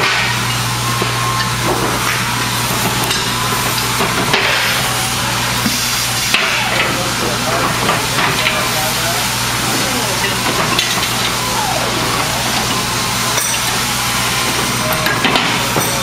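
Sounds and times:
low electrical hum: 0:00.0 - 0:16.0
workshop hiss: 0:00.0 - 0:16.0
faint indistinct voices: 0:06.3 - 0:16.0.

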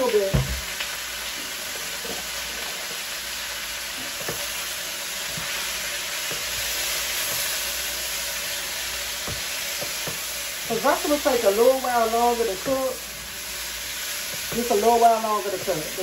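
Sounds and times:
onions sizzling in oil: 0:00.0 - 0:16.0
utensil tapping pan: 0:09.2 - 0:10.3.

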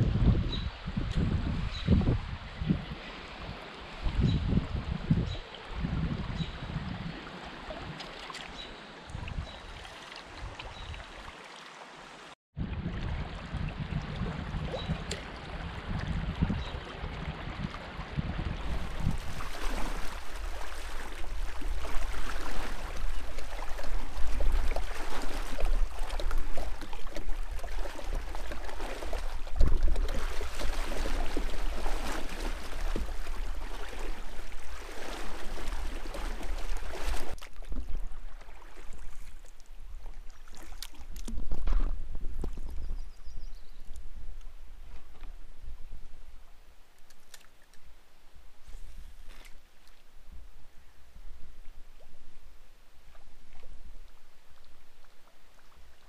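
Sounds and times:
water rushing around kayak: 0:00.0 - 0:45.9
legs splashing through river: 0:06.4 - 0:12.0, 0:13.0 - 0:41.6.

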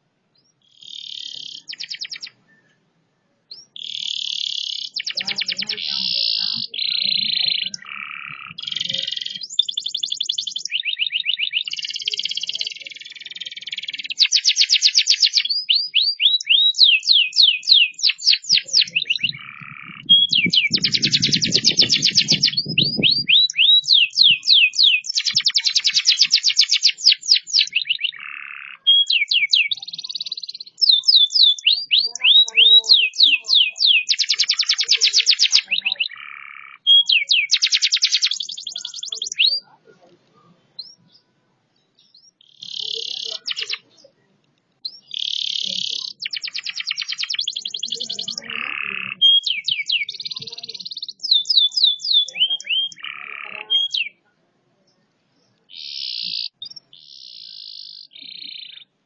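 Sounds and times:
canary singing trills: 0:00.0 - 0:02.8, 0:03.4 - 0:54.3, 0:54.9 - 0:59.0
low muffled noise: 0:39.6 - 0:42.1.

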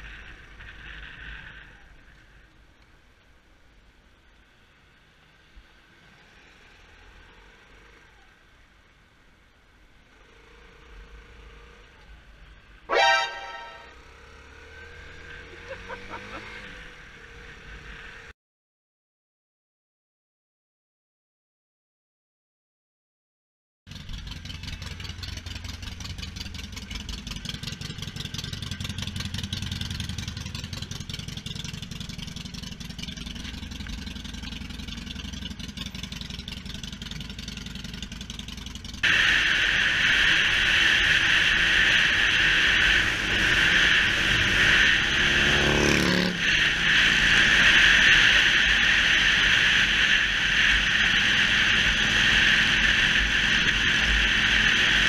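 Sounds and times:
motorcycle engines rumbling: 0:00.0 - 0:18.3, 0:23.9 - 0:55.0
vehicle passing by: 0:13.0 - 0:18.3, 0:41.7 - 0:55.0.

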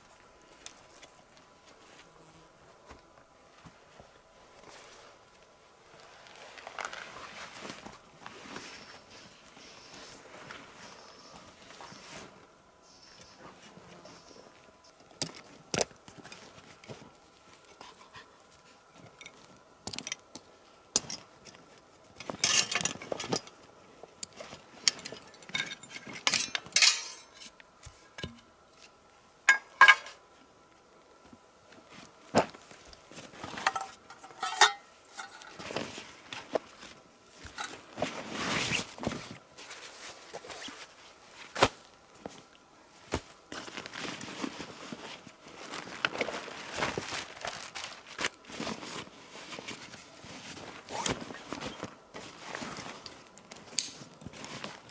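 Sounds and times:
rustling: 0:00.4 - 0:19.6, 0:31.6 - 0:54.9.

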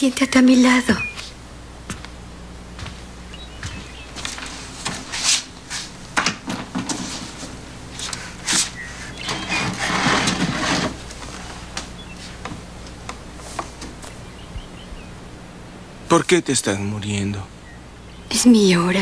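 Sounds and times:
steady low hum: 0:00.0 - 0:19.0
clothing and bedding rustling: 0:02.7 - 0:14.2
wooden chair moving: 0:03.6 - 0:14.2.

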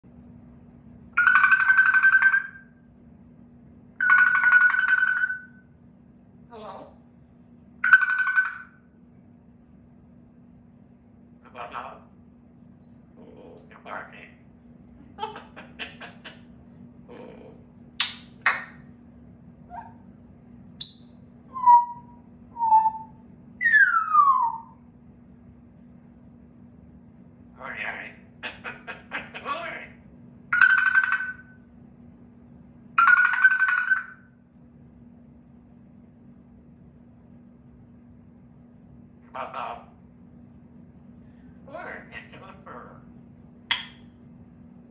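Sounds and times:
parrot mimicking phone ringing: 0:01.2 - 0:02.7, 0:04.0 - 0:05.6, 0:07.8 - 0:08.8, 0:30.5 - 0:31.5, 0:33.0 - 0:34.2.

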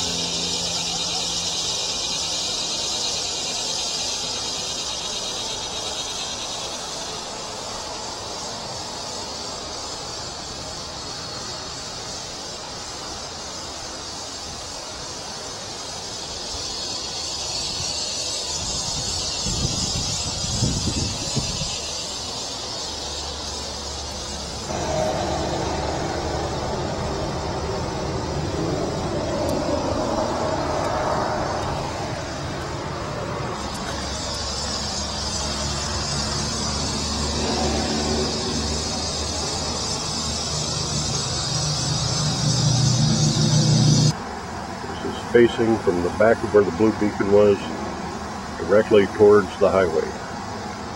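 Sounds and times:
high hiss: 0:00.0 - 0:50.9
high-pitched insect chorus: 0:00.0 - 0:50.9
highway traffic noise: 0:00.0 - 0:50.9
wind buffeting microphone: 0:17.8 - 0:22.4.

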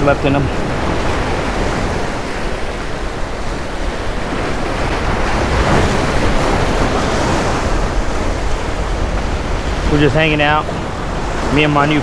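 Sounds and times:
surf breaking over rocks: 0:00.0 - 0:12.0.

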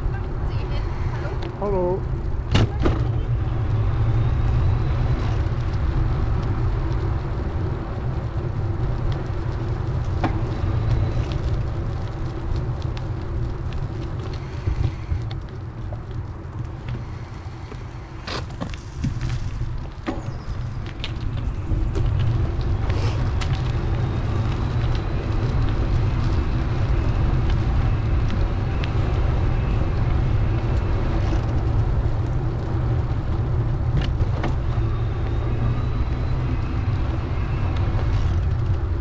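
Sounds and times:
road and traffic rumble: 0:00.0 - 0:39.0.

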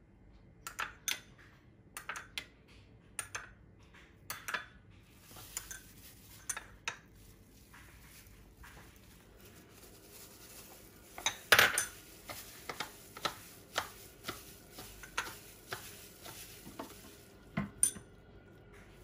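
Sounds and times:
bean sprouts tossed in plastic bowl: 0:05.1 - 0:17.6.

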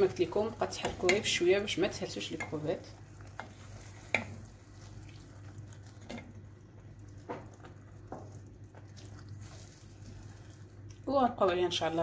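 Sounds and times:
wooden spoon stirring sauce: 0:00.0 - 0:11.1
spoon scraping pan: 0:02.3 - 0:05.0.

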